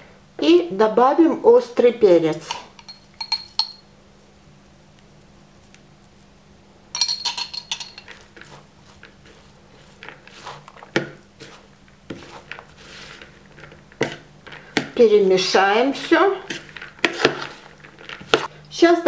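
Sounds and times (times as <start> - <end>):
metal utensil clinking: 2.5 - 3.8, 7.0 - 8.3
utensil scraping in plastic bowl: 7.8 - 15.0, 15.7 - 18.5.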